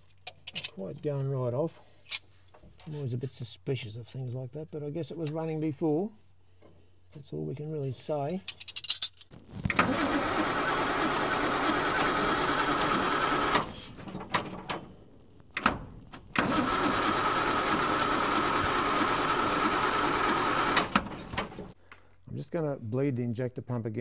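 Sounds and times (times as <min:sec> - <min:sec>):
starter motor cranking diesel engine: 0:09.7 - 0:14.8, 0:15.5 - 0:21.8.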